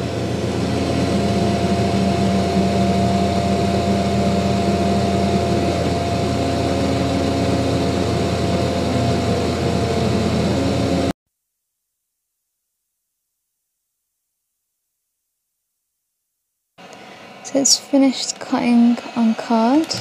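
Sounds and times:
fan whirring: 0.0 - 11.1, 16.8 - 20.0
low hum: 0.0 - 11.1
thin steady whine: 0.0 - 11.1, 16.8 - 20.0.

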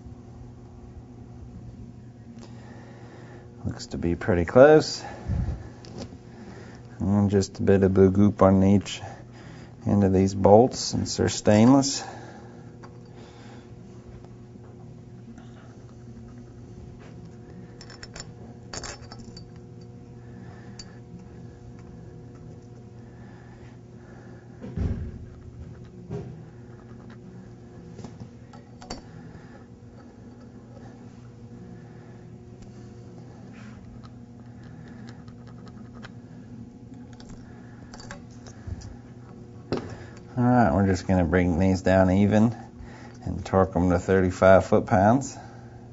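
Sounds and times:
steady low hum: 0.0 - 45.9
metal bolts clinking: 17.8 - 19.6, 28.5 - 29.1.

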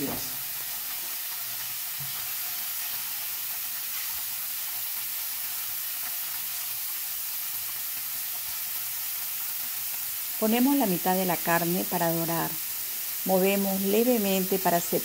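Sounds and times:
meat sizzling in a pan: 0.0 - 15.0.

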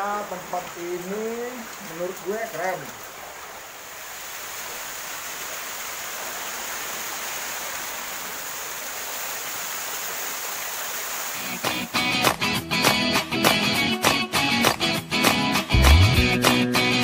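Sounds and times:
waterfall rushing: 0.0 - 12.5.

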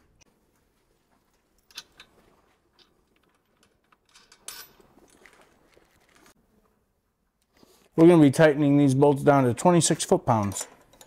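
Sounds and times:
metallic clicks of bolts and washers: 1.6 - 5.4, 10.3 - 11.0.

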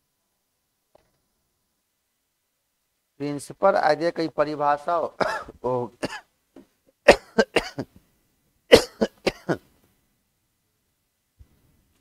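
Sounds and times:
man coughing: 5.2 - 6.3, 7.1 - 7.9, 8.7 - 9.7.

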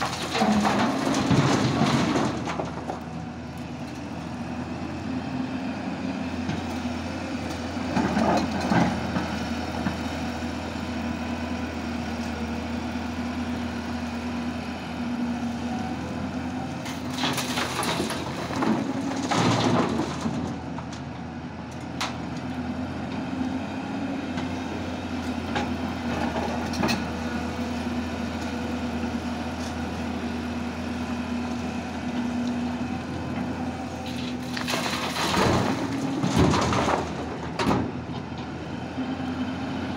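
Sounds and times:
soil and stones rattling into truck bed: 0.0 - 3.4, 16.8 - 21.1, 34.0 - 38.4
diesel engines humming: 0.0 - 39.9.

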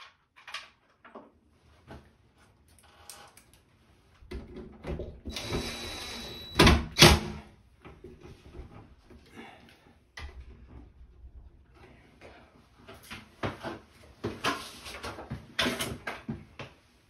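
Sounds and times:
cordless drill driving screw: 5.3 - 6.7.

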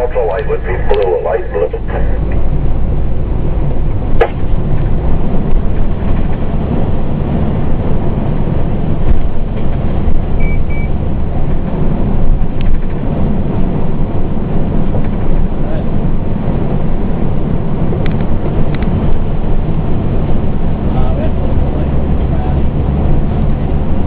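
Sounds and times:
diesel engine and road rumble: 0.0 - 24.0
short high beeps: 10.4 - 11.0.

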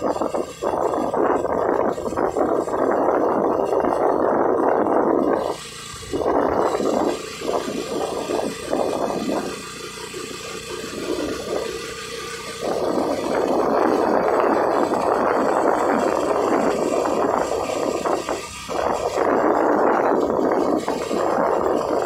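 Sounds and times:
wind buffeting the microphone: 0.0 - 22.0.

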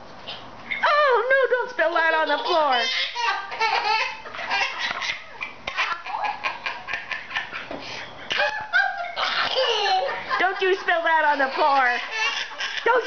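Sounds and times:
toddler laughing: 1.9 - 7.7, 8.3 - 10.4, 11.2 - 13.0.

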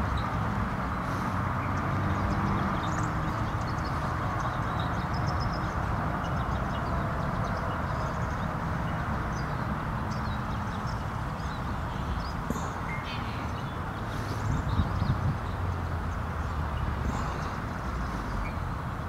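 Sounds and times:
distant traffic rumble: 0.0 - 19.0.

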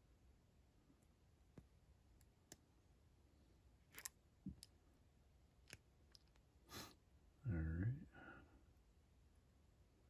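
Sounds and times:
faint clicks and taps: 1.0 - 2.7.

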